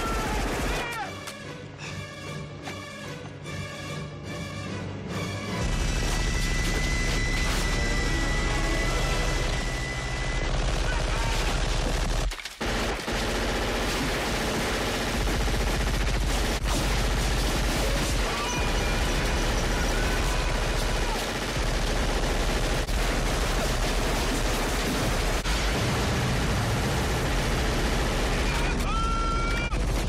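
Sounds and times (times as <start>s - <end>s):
heavy automatic gunfire: 9.3s - 28.8s.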